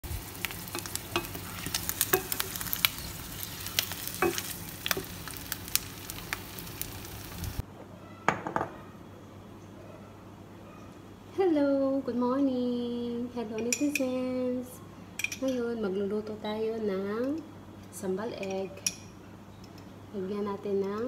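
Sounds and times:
eggs sizzling in oil: 0.0s - 7.6s.

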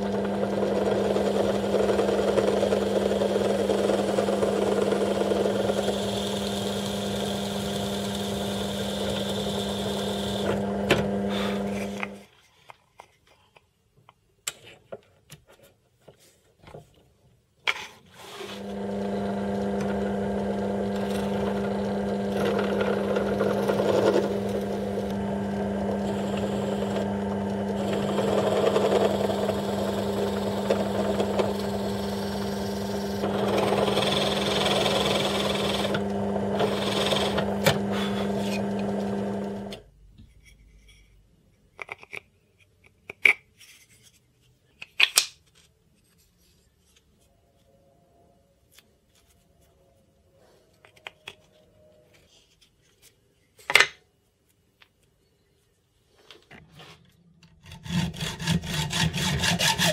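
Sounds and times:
electric drill boring into wood: 0.0s - 12.2s, 18.2s - 39.8s, 58.4s - 59.9s.

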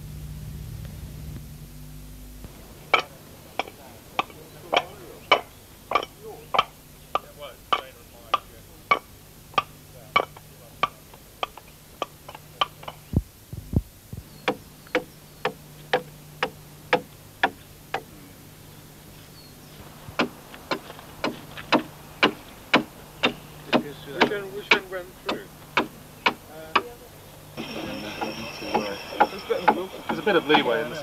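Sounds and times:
hand tool chopping into wood: 20.2s - 26.9s.

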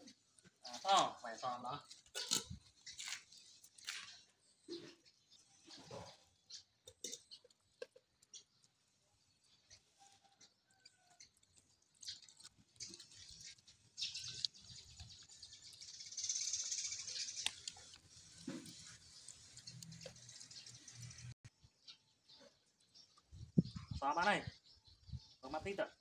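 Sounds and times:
dogs chewing and lapping: 11.2s - 21.2s.

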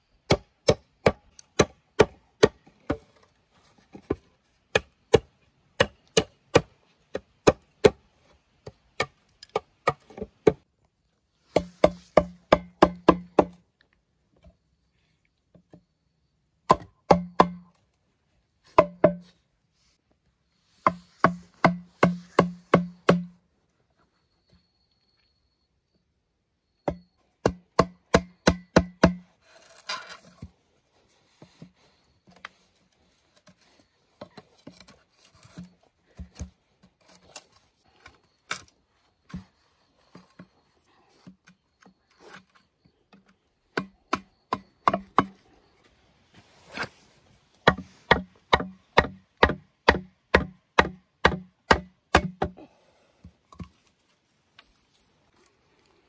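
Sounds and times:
blade chopping bamboo: 11.5s - 13.6s, 20.9s - 23.3s, 26.9s - 29.3s, 47.6s - 52.5s.

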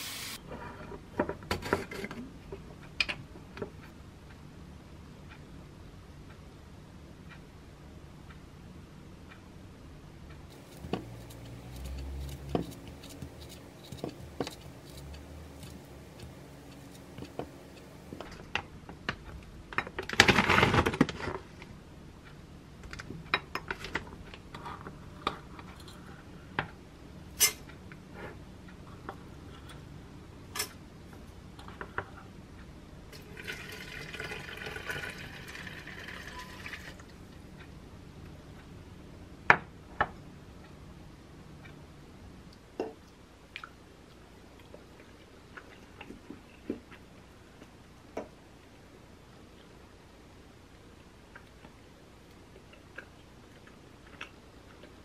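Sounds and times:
water poured into glass teapot: 33.2s - 37.0s.

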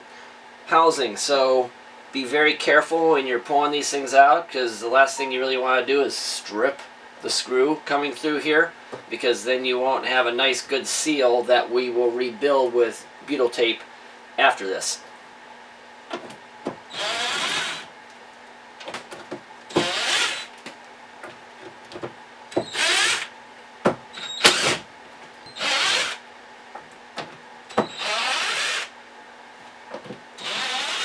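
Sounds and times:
power drill spinning out screws: 16.9s - 17.9s, 19.7s - 20.5s, 22.6s - 23.3s, 24.2s - 24.8s, 25.5s - 26.2s, 27.8s - 28.9s, 30.4s - 31.0s.

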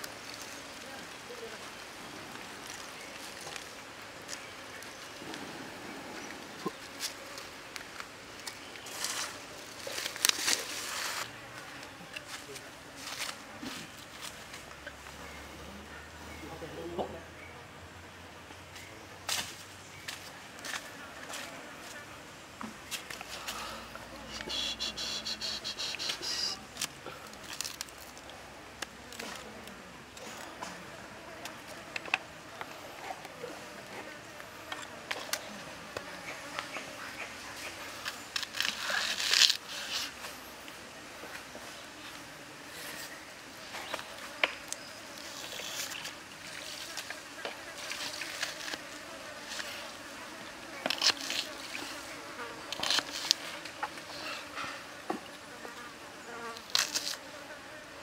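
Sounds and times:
insect buzzing: 23.4s - 26.7s, 43.3s - 58.0s
insect buzzing trill: 24.3s - 26.6s.

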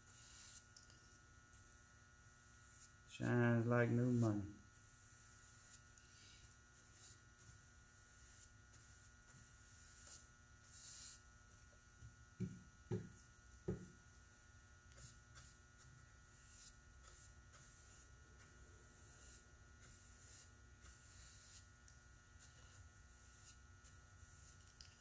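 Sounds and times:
low electrical hum: 0.0s - 25.0s
paintbrush swishing: 14.9s - 21.7s, 22.4s - 24.9s.

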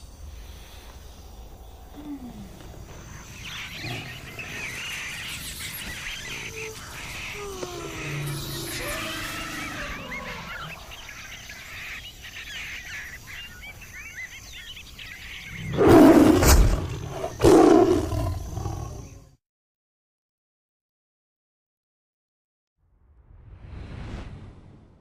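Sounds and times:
birds chirping: 0.0s - 19.4s.

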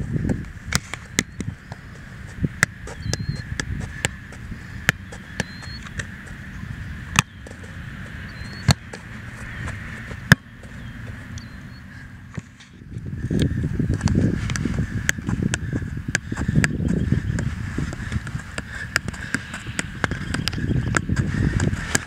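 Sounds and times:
steady low rumble: 0.0s - 22.0s
soccer ball thumps off foot: 7.1s - 7.6s, 8.6s - 9.0s, 13.9s - 22.0s.

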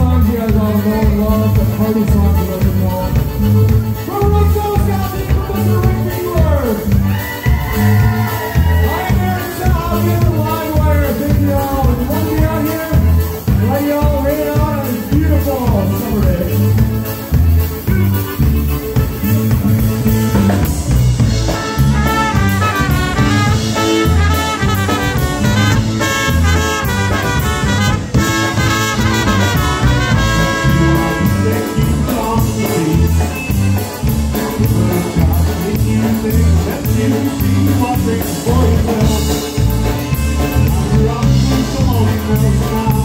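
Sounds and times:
concertina: 0.0s - 43.0s
drum kit oom-pah beat: 0.0s - 43.0s
electric bass: 0.0s - 43.0s
trumpets playing melody: 12.0s - 34.0s.

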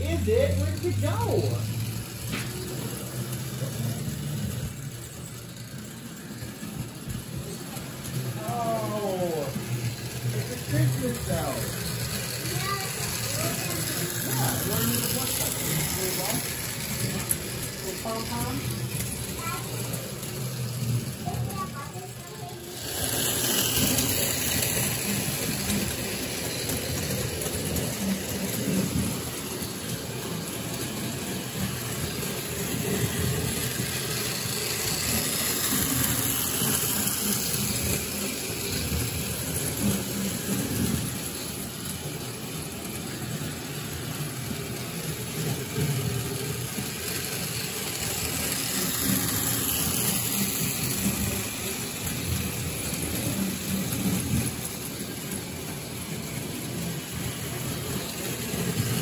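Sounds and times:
electric model train running: 0.0s - 59.0s.

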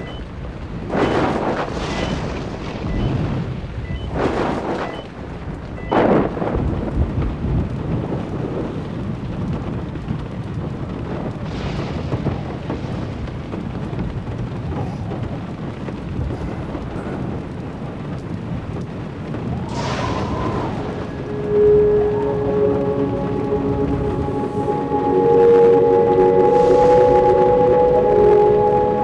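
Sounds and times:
wind and rain rumble: 0.0s - 29.0s
loud whoosh: 19.6s - 29.0s.

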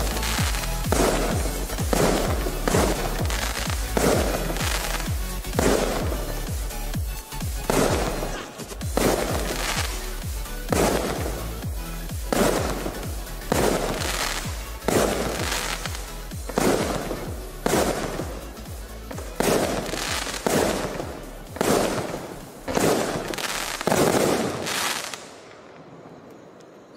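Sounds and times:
firework bursts with crackle: 0.0s - 26.3s
firework launch thumps: 5.6s - 6.3s.

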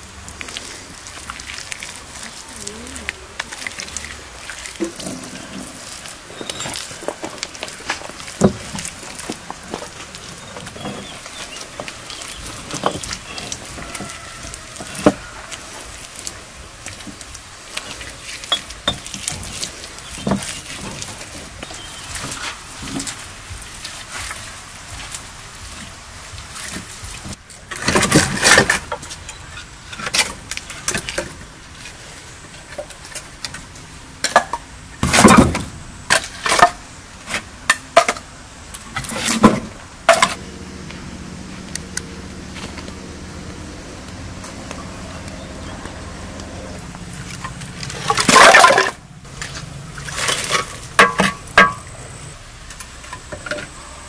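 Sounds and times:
firewood clunking together: 4.5s - 23.3s, 26.6s - 40.4s, 44.4s - 53.8s.

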